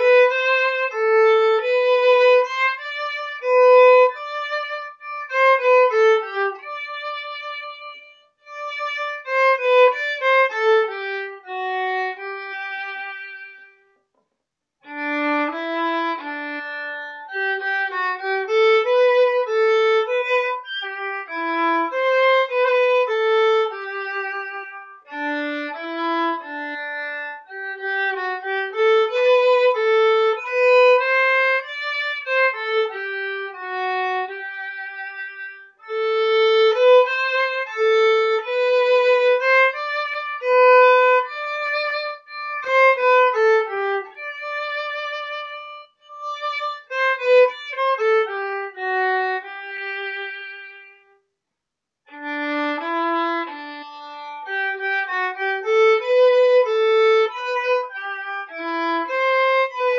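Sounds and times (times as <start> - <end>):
solo violin hymn melody: 0.0 - 14.0, 14.8 - 51.2, 52.1 - 59.9.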